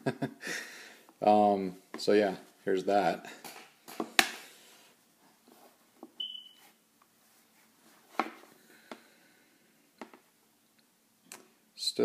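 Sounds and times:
short high beep: 0:06.2 - 0:06.6.

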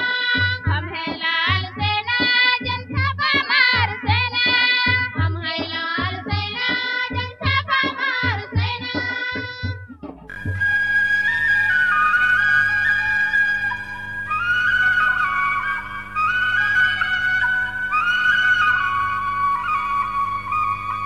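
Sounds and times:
held drone: 0:10.3 - 0:21.0.

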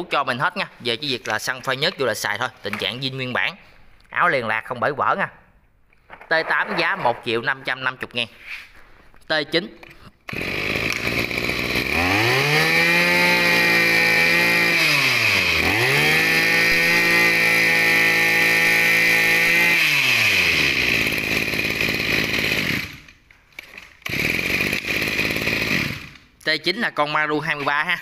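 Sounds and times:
brush cutter engine revving and idling: 0:10.3 - 0:26.2.

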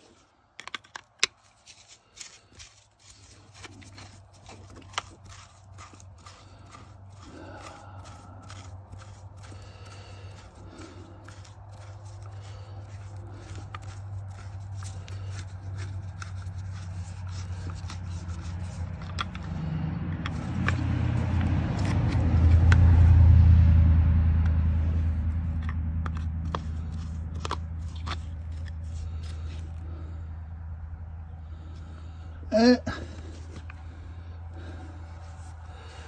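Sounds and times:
screwdriver clicking and scraping: 0:00.0 - 0:22.8, 0:25.5 - 0:29.8
passing vehicle rumble: 0:03.6 - 0:36.0.

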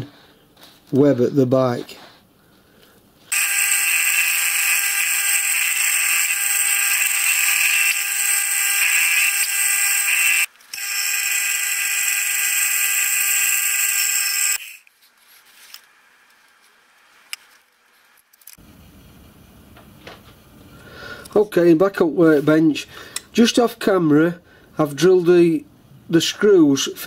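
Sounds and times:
milling machine whine: 0:03.3 - 0:14.8.

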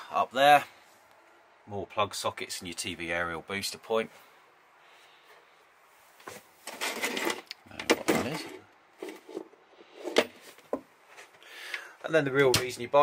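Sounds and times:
cables rustling and scraping: 0:05.1 - 0:11.8.

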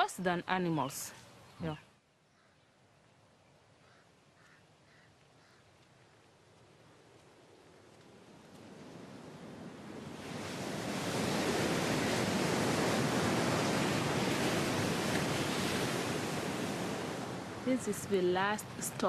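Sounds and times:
ocean surf breaking: 0:08.2 - 0:19.0.

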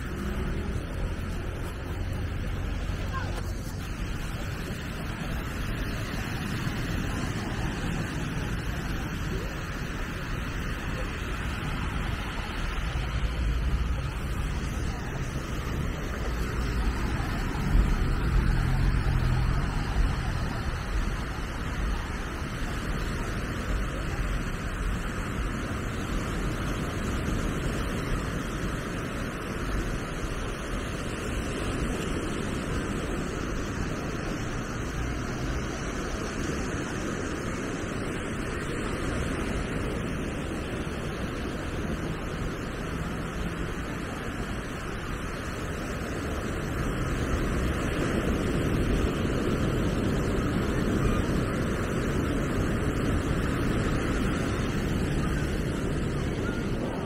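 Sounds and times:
ocean surf washing on beach: 0:00.0 - 0:57.0.

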